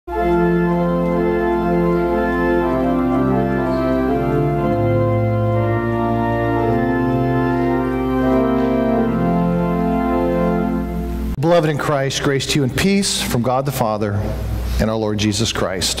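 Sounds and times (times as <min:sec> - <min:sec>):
organ chords: 0:00.1 - 0:16.0.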